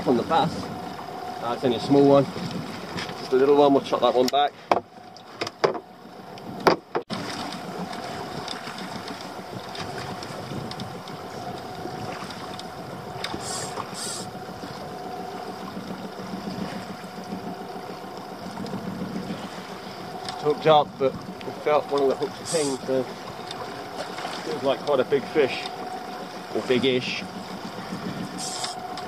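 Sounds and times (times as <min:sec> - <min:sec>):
faint steady hum: 0:00.0 - 0:29.0
water washing around hull: 0:00.0 - 0:29.0
short high hisses: 0:13.4 - 0:14.3, 0:28.4 - 0:28.8.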